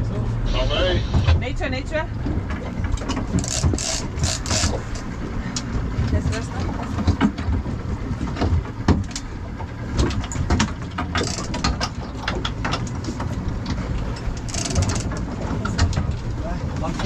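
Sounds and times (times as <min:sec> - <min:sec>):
boat engine running: 0:00.0 - 0:17.0
fishing reel clicking: 0:03.4 - 0:05.0, 0:14.4 - 0:15.1.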